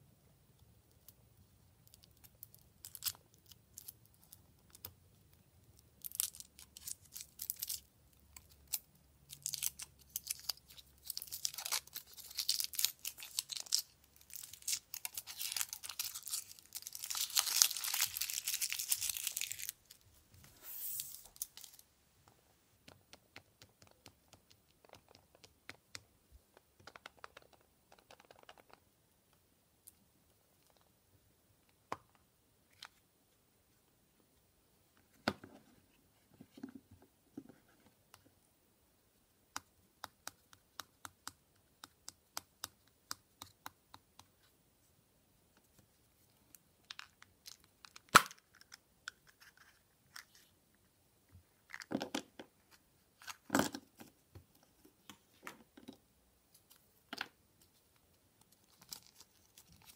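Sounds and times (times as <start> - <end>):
foil wrapper crinkling: 9.4 - 20.0.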